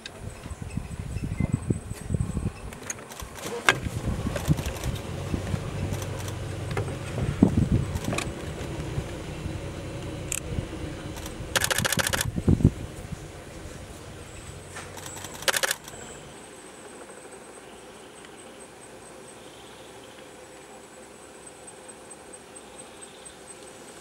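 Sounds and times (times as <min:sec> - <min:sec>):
low steady rumble: 0:03.8 - 0:16.9
camera shutter clicks: 0:11.2 - 0:12.3, 0:14.9 - 0:16.0.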